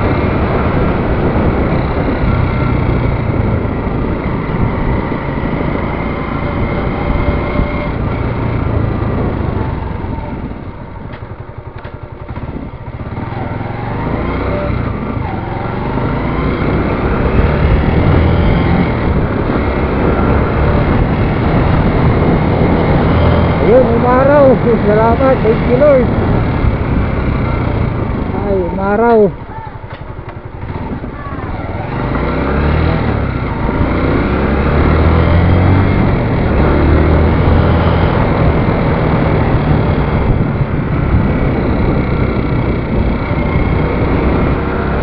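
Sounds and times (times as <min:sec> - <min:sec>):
motorcycle engine: 0:00.0 - 0:45.0
road noise: 0:00.0 - 0:45.0
wind noise: 0:00.0 - 0:45.0.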